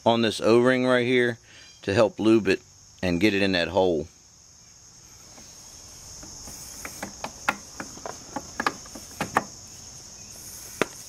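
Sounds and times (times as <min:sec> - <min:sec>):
crickets chirring: 0:00.0 - 0:11.0
metal clicks and knocks: 0:06.2 - 0:09.6.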